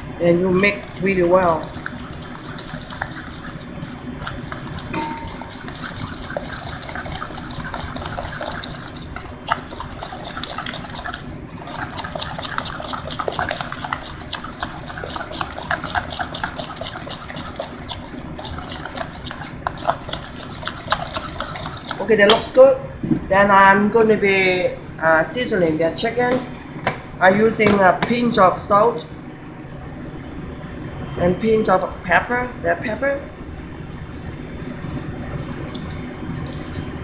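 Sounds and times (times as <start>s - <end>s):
spoon stirring batter in metal bowl: 1.4s - 22.5s.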